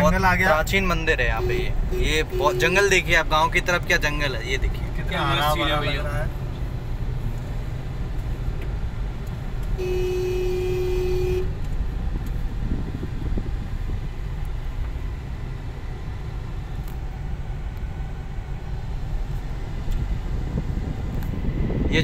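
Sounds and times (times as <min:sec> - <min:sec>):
car engine and tyres rumbling: 0:00.0 - 0:22.0
vehicle horn blast: 0:01.3 - 0:02.9, 0:09.8 - 0:11.6.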